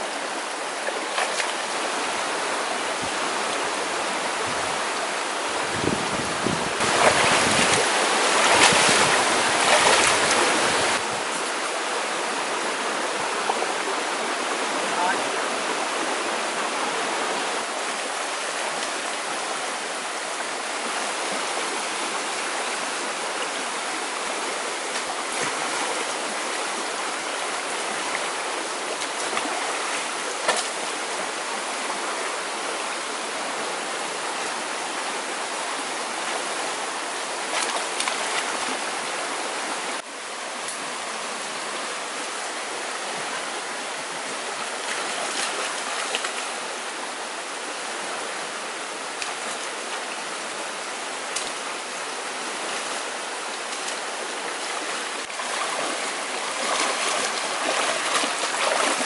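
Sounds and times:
stream rushing over rocks: 0.0s - 59.0s
splashes of wading: 6.8s - 11.5s, 24.8s - 26.7s, 37.4s - 39.2s, 44.6s - 46.6s, 51.2s - 59.0s.

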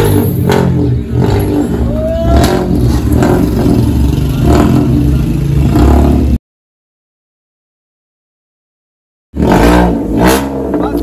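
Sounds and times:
car engine revving loud exhaust: 0.0s - 6.4s, 9.4s - 11.0s.

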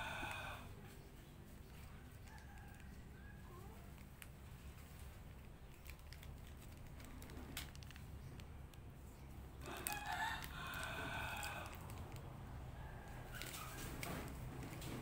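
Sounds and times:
plastic bag crinkling: 3.6s - 15.0s.

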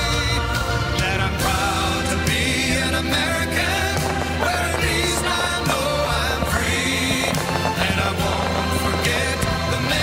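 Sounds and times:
music with singing voice: 0.0s - 10.0s.

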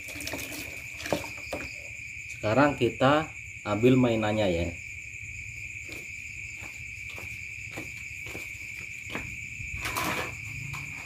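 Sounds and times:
water rushing from hose into tub: 0.0s - 1.9s
crickets trilling: 0.0s - 11.0s.

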